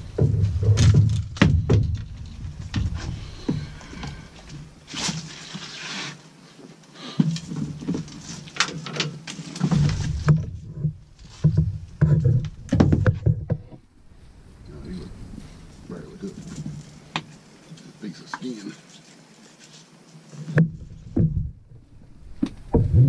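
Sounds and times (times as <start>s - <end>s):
knocks and thumps on boat deck: 0.0s - 4.2s, 9.6s - 13.8s, 20.5s - 21.6s, 22.4s - 23.0s.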